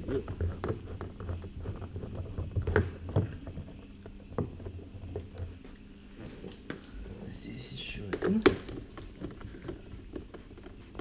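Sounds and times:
rubbing handling noise: 8.8 - 11.0.

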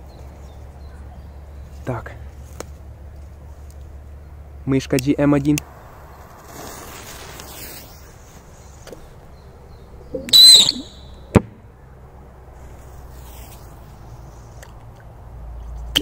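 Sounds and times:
sharp crack: 5.0 - 9.1, 10.2 - 11.6
firecracker burst: 5.7 - 8.3.

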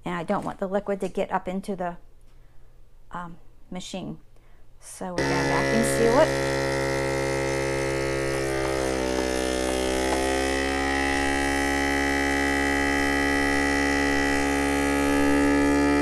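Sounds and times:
vacuum sealer pump humming: 5.2 - 16.0.

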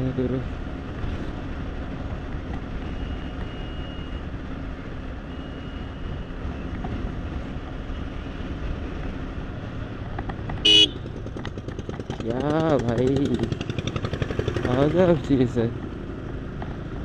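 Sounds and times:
wind and road noise: 0.0 - 17.0
motorcycle engine running: 6.6 - 17.0.

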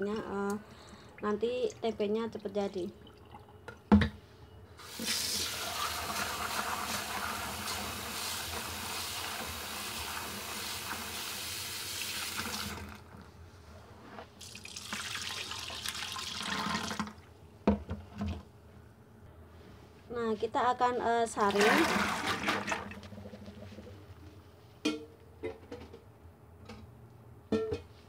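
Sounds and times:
water splashing into sink: 14.4 - 17.2, 21.4 - 23.2.

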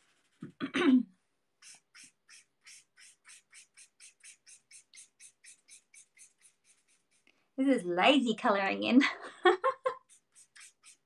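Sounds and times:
marker scratching on paper: 1.6 - 7.3, 10.0 - 11.0.

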